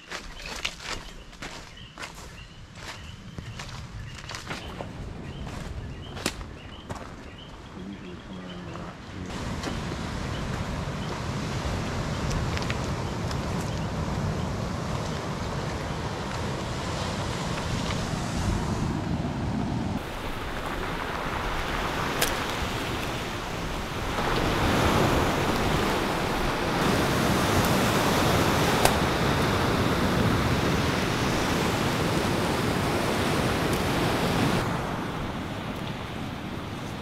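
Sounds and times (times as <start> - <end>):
surf washing onto cobble beach: 9.3 - 37.0.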